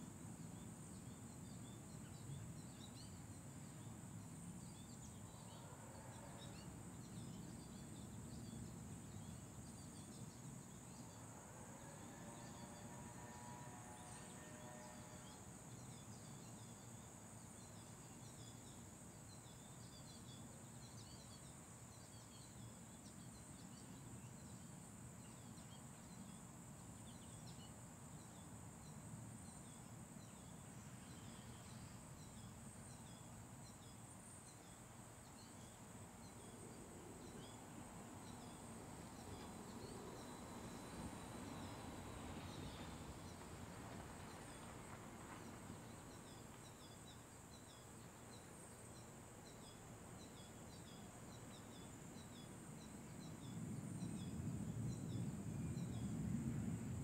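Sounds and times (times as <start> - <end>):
high insect drone: 0.0 - 57.0.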